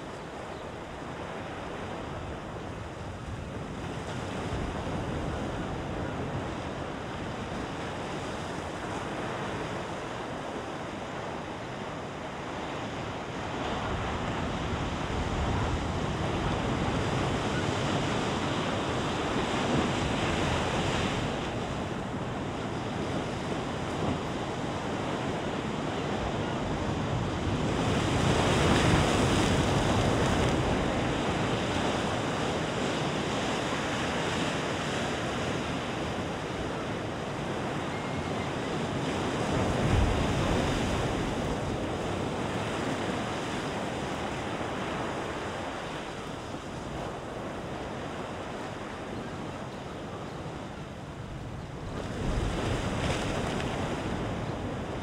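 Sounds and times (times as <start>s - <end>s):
surf washing over rocks: 18.2s - 49.1s.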